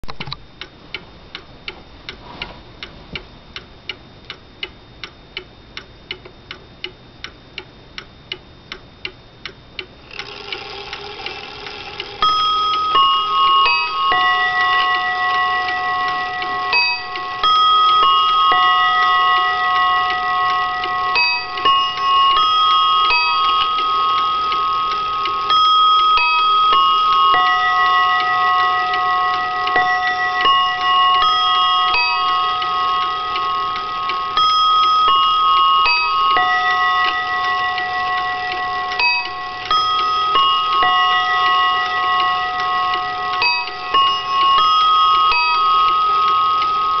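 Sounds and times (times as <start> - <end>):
mantel clock ticking: 0.1 - 47.0
chime train whirring: 10.1 - 47.0
clock chime melody: 10.1 - 47.0.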